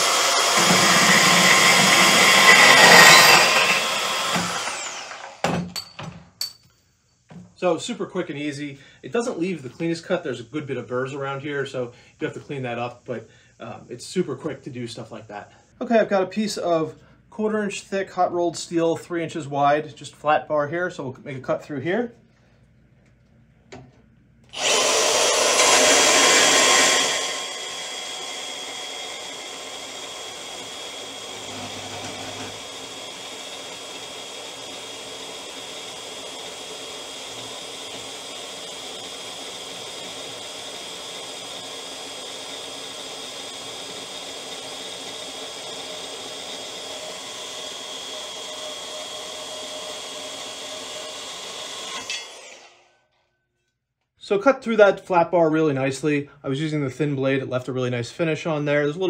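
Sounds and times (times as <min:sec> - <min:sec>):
bandsaw cutting steel: 0:00.0 - 0:06.6, 0:24.5 - 0:53.0.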